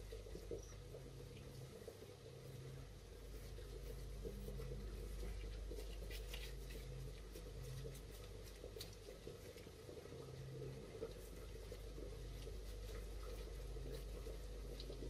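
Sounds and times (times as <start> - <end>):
soft crackles: 0.0 - 15.0
steady low hum: 0.0 - 15.0
gloved hand squishing mashed food: 3.3 - 15.0.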